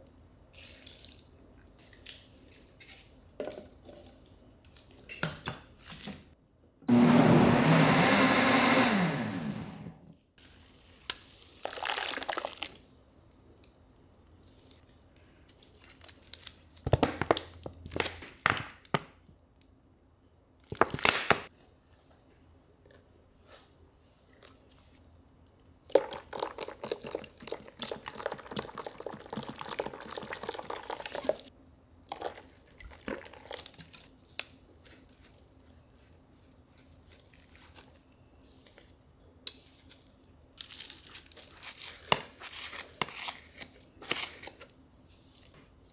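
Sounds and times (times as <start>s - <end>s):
crinkling: 33.8s - 39.0s.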